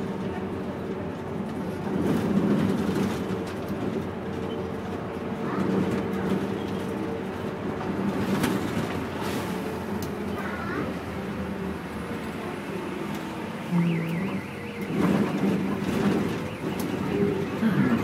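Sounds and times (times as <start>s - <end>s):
bus engine humming: 0.0s - 18.0s
road noise: 0.0s - 18.0s.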